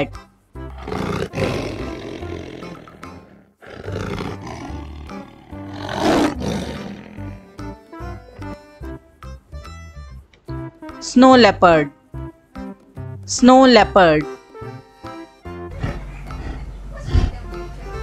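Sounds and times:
background music: 0.0s - 18.0s
wild cat growling: 0.6s - 7.8s, 15.6s - 17.5s.

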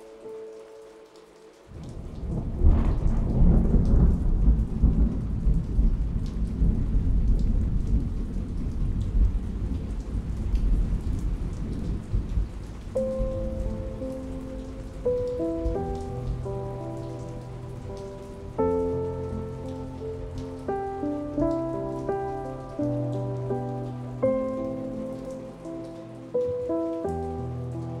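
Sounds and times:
soft music notes: 0.0s - 2.0s, 12.9s - 28.0s
heavy rain: 0.0s - 28.0s
thunder rolling: 1.7s - 22.3s.

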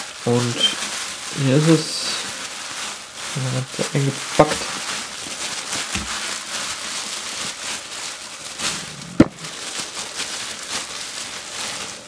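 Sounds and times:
bubble wrap crinkling: 0.0s - 12.0s
bubble wrap pop: 4.4s - 7.6s, 8.6s - 10.9s.

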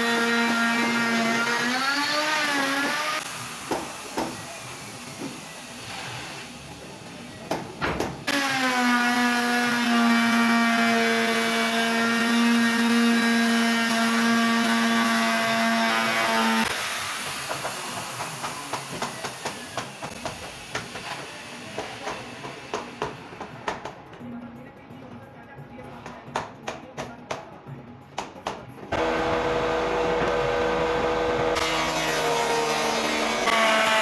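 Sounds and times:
electric router cutting wood: 0.0s - 3.8s, 8.3s - 18.2s, 29.0s - 34.0s.

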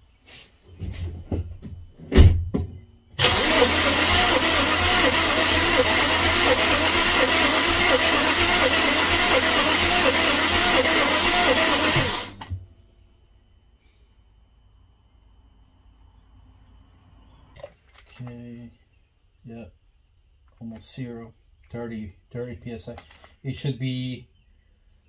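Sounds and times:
engine cranking on starter: 3.2s - 12.5s.

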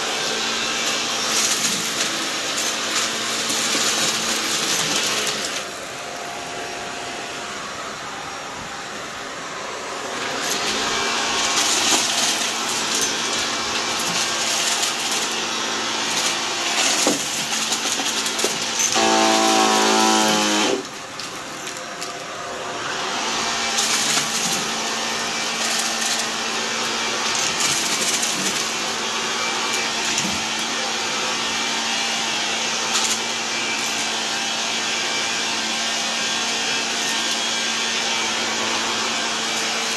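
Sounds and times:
high-pitched vacuum whine: 0.0s - 39.9s
vacuum cleaner running on carpet: 0.0s - 39.9s
debris clicking inside vacuum: 10.4s - 22.4s, 23.6s - 28.8s.

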